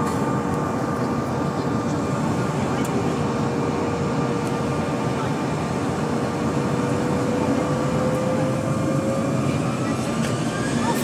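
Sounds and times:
jet engines at takeoff thrust: 0.0s - 11.0s.

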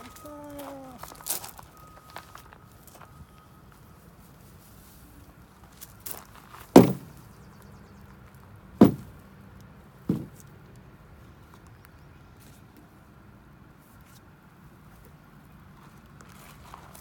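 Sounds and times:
grass bag thumping on ground: 6.8s - 7.2s, 8.8s - 9.1s, 10.1s - 10.4s.

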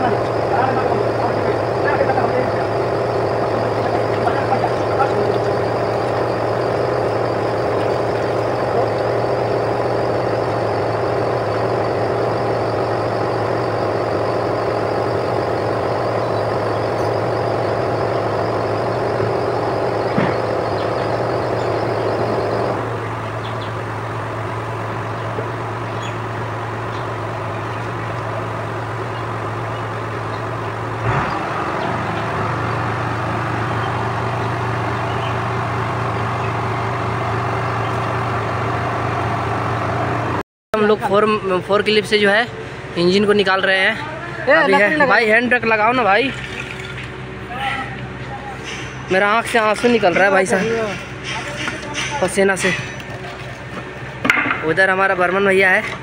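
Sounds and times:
engine humming: 0.0s - 56.0s.

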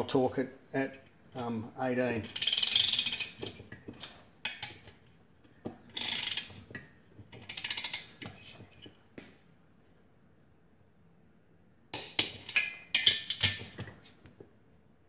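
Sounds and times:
torque wrench ratcheting clicks: 2.2s - 3.6s, 6.0s - 6.6s, 7.5s - 8.2s.

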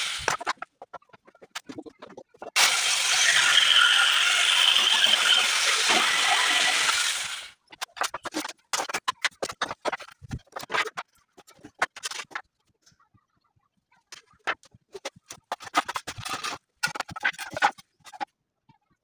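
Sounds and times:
jigsaw cutting wood: 2.6s - 7.5s.

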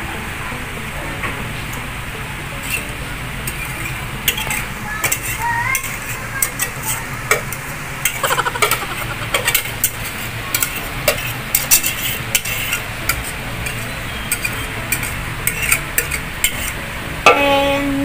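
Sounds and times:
whisk scraping metal pot: 2.6s - 16.8s
low hum: 8.2s - 9.9s.

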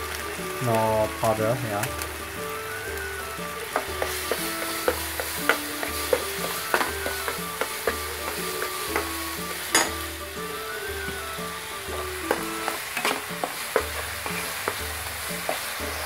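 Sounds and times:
light sizzle: 0.0s - 16.0s
soft background music with bass: 0.0s - 16.0s
spatula scraping a pan: 3.5s - 16.0s.

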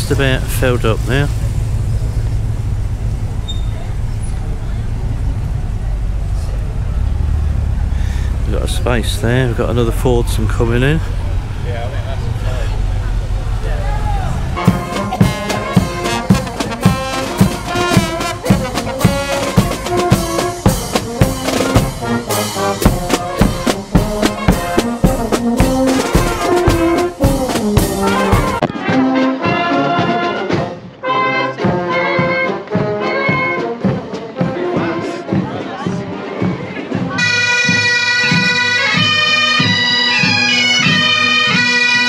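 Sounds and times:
brass band music: 0.0s - 42.0s.

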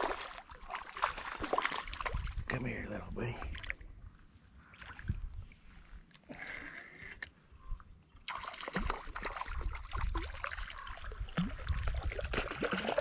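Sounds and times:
fish splashing and thrashing in water: 0.0s - 2.5s, 8.2s - 13.0s.

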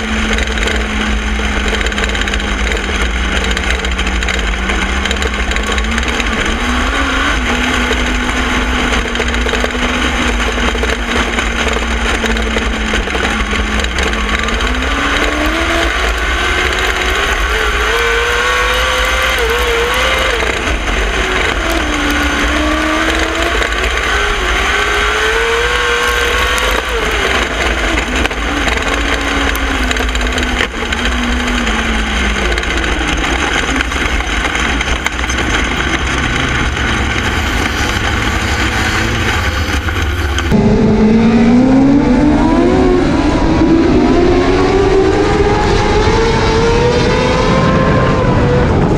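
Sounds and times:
race car engine revving: 0.0s - 48.9s
low rumble: 25.9s - 48.9s.

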